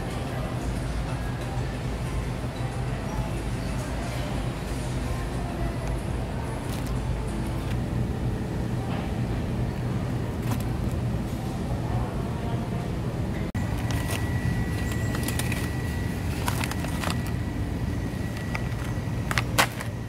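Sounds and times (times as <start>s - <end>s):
supermarket background rumble: 0.0s - 20.0s
shopping cart clicks and rattles: 13.6s - 17.5s, 18.2s - 20.0s.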